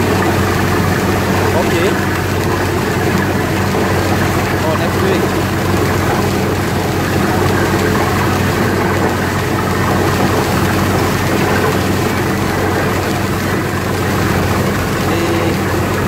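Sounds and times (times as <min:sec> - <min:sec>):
drilling rig engine humming: 0:00.0 - 0:16.0
muddy water gushing and spraying: 0:00.0 - 0:16.0.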